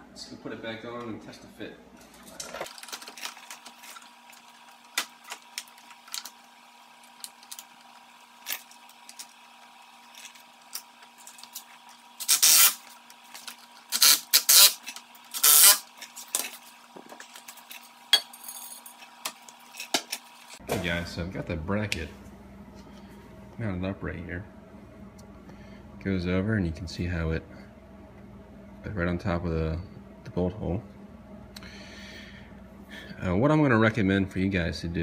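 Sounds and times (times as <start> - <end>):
faint steady hum: 0.0 - 35.0.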